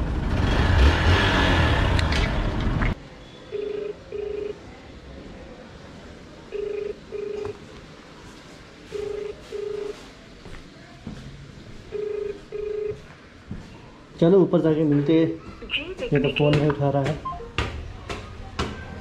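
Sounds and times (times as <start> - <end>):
phone ringback tone: 3.5 - 4.6, 6.5 - 7.6, 8.9 - 10.0, 11.9 - 13.0.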